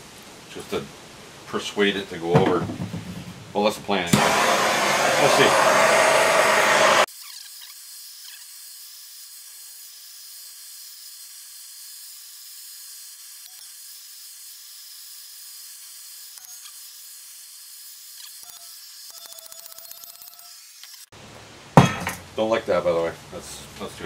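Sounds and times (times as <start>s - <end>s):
torch flame hissing: 4.1s - 7.1s.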